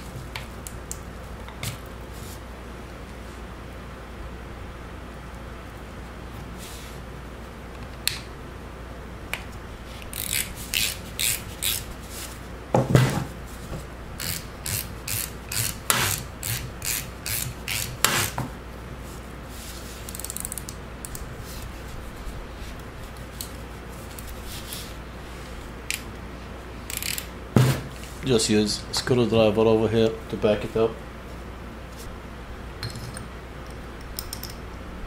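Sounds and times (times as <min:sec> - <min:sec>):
metal clicks and scrapes of wrench: 0:10.0 - 0:11.8, 0:26.9 - 0:27.3.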